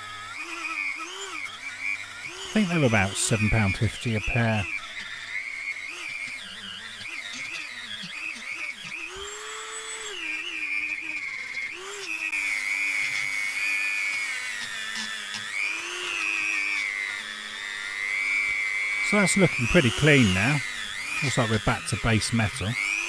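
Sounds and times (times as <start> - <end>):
high motor whine: 0.0 - 23.0
wire brush scrubbing metal: 2.2 - 5.1, 14.1 - 23.0.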